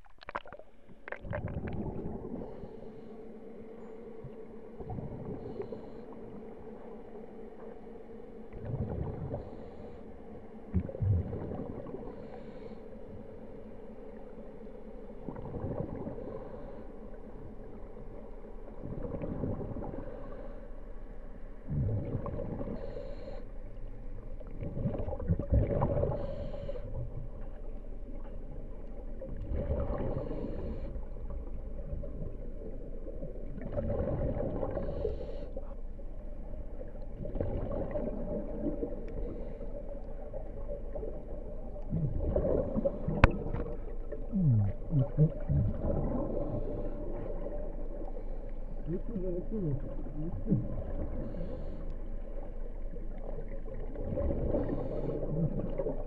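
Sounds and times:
underwater water surging: 0.0s - 56.0s.

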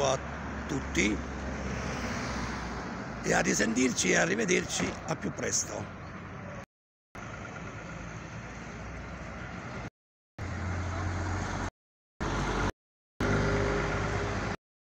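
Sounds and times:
street traffic: 0.0s - 14.6s
bus engine humming: 2.9s - 6.6s, 7.2s - 14.6s.

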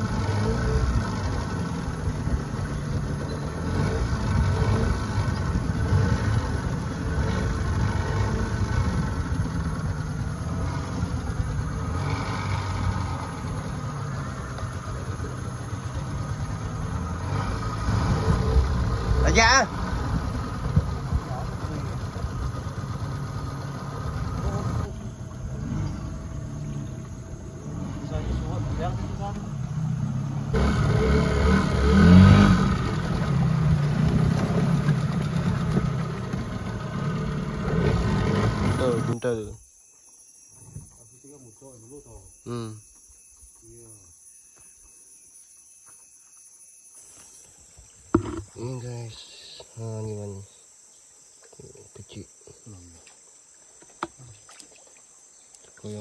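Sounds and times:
boat motor running: 0.0s - 39.4s, 48.1s - 48.9s.

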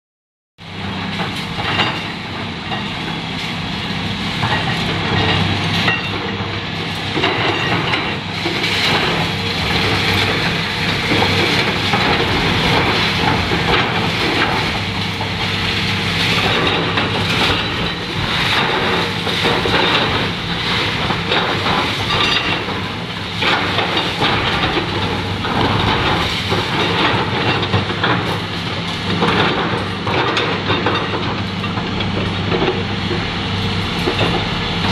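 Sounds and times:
diesel engine under load: 0.6s - 34.9s
concrete debris clattering and crashing: 4.4s - 34.9s.

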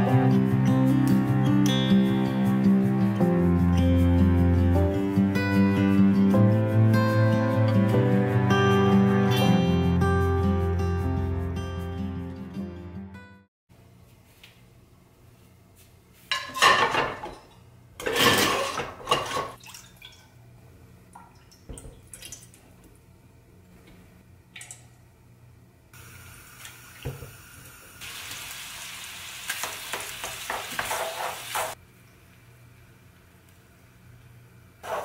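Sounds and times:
metal pan clattering on grate: 16.3s - 17.4s, 18.0s - 19.6s.

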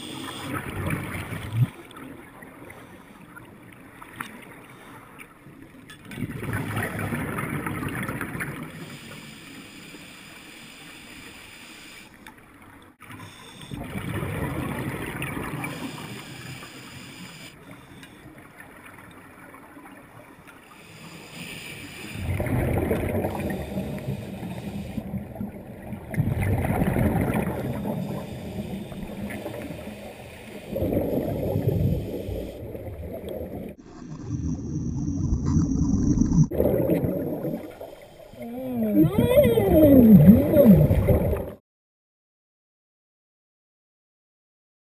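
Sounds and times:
divers exhaling bubbles underwater: 6.2s - 8.8s, 13.7s - 16.1s, 22.1s - 30.0s, 30.6s - 41.6s.

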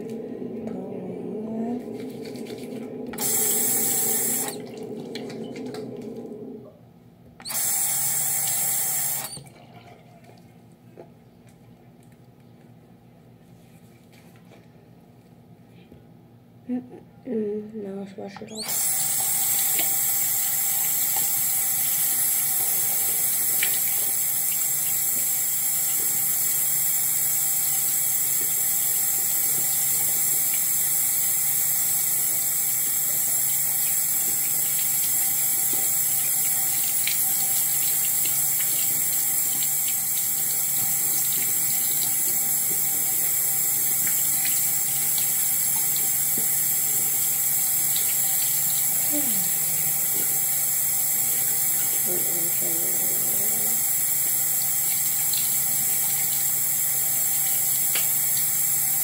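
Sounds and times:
tap running into a basin: 18.6s - 49.1s, 53.4s - 59.0s.

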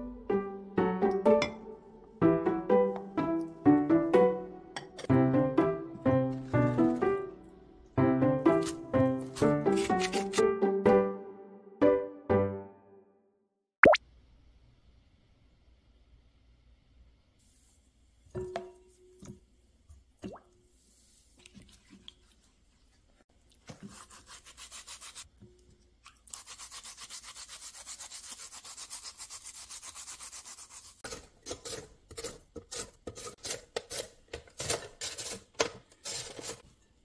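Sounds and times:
carrot scrubbed with mesh cloth: 8.5s - 10.4s, 20.8s - 25.3s, 26.3s - 31.4s
uneven scraping strokes: 26.3s - 31.2s.

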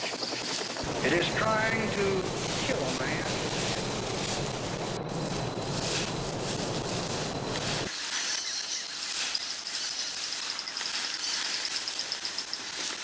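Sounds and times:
wind-like rush: 0.8s - 7.9s.

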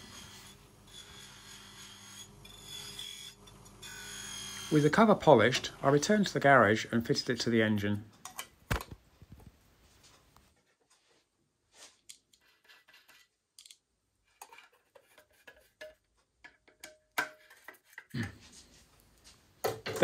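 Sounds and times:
small screws clicking and scraping: 12.0s - 15.7s.

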